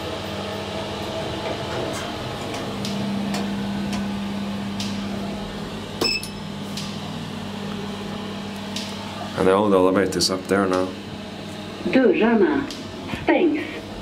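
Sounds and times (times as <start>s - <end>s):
elevator car humming: 0.0s - 14.0s.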